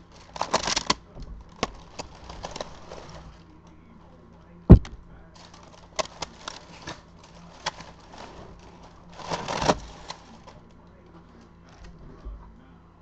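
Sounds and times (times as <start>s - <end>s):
tissue paper rustling: 5.4s - 10.6s.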